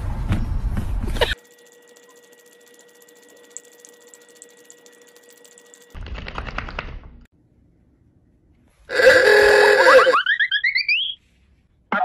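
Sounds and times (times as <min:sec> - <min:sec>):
faint steady hum: 0:01.4 - 0:06.0.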